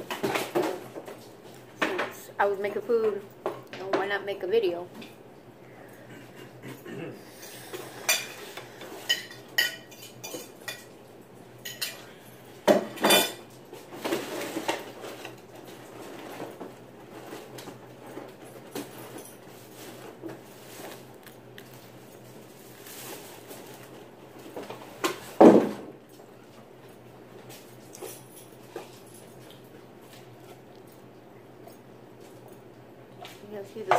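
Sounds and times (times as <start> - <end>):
cutlery clinking on a plate: 8.0 - 10.9, 12.7 - 13.4.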